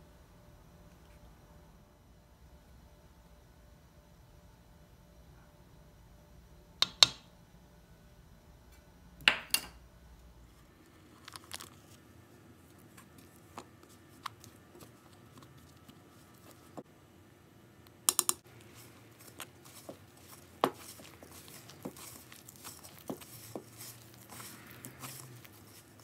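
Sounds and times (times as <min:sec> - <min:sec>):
paper wrapper crinkling: 0:10.9 - 0:12.0, 0:18.5 - 0:26.0
spatula scraping in flour: 0:18.4 - 0:26.0
plastic spoon knocking on bowl: 0:20.6 - 0:23.7.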